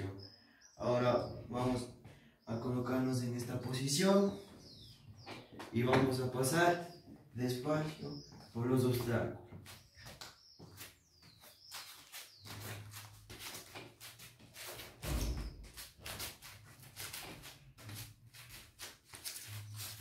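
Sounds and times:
scuffing and rustling on straw mat: 9.6s - 20.0s.

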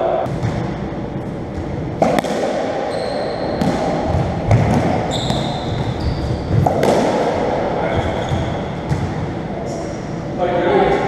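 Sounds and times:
ball cracking off racquets and walls: 1.6s - 9.2s
shoe squeaks: 2.9s - 3.6s, 5.1s - 6.7s, 7.9s - 8.7s.

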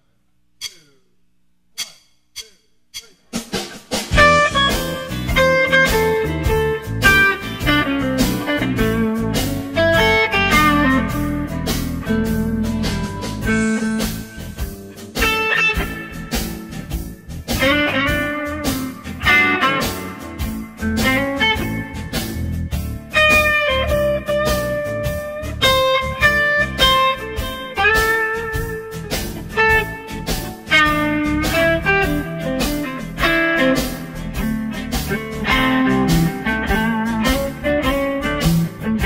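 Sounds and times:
blues music with guitar and drums: 3.5s - 39.0s.

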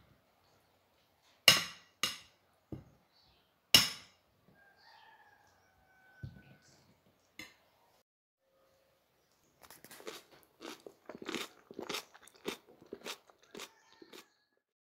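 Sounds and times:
wet crunching of salad: 9.6s - 14.4s.

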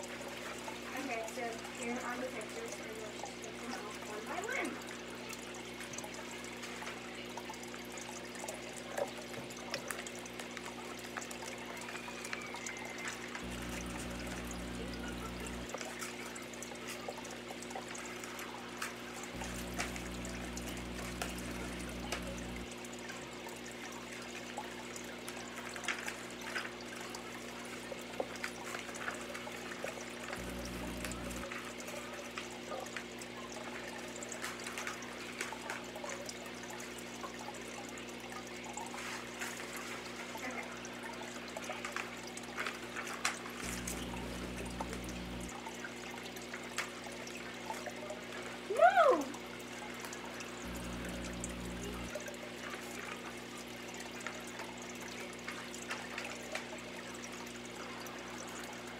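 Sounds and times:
hissing room noise: 12.3s - 15.8s, 18.4s - 22.7s, 30.3s - 31.5s, 43.6s - 45.6s, 50.5s - 52.2s.

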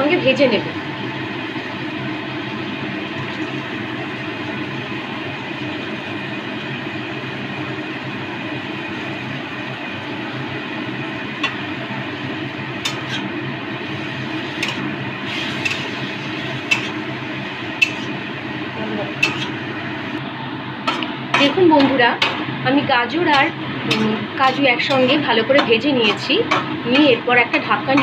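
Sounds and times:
food frying rushing noise: 0.7s - 28.0s
spatula scraping metal pan: 16.6s - 17.0s, 19.2s - 19.6s, 23.3s - 26.2s.

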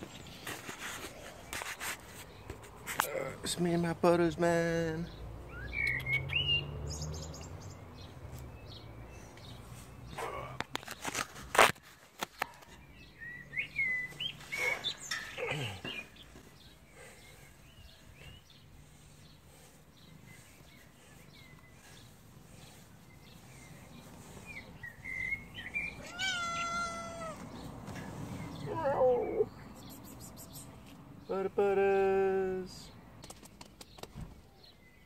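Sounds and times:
kitten meowing: 26.0s - 27.4s.

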